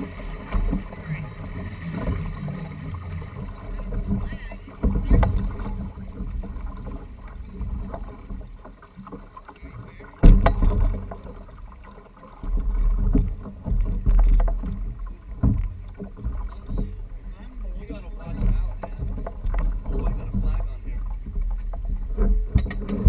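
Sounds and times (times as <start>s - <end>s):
water slapping against hull: 0.0s - 23.0s.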